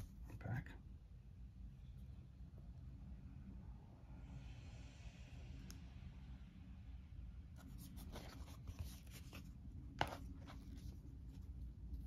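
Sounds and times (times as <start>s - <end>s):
cardboard sheets rustling: 7.6s - 12.0s.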